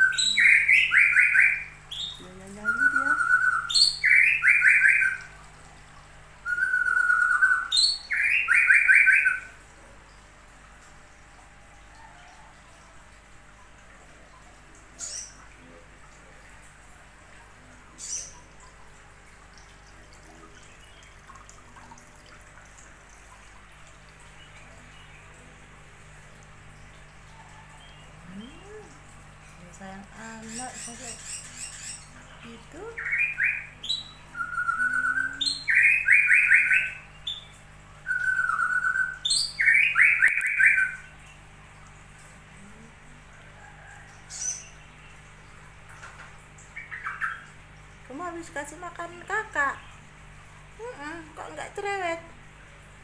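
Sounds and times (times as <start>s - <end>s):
bird singing: 0.0s - 5.3s, 6.4s - 9.6s, 30.2s - 41.1s
water trickling: 0.0s - 53.0s
low hum: 12.6s - 30.4s.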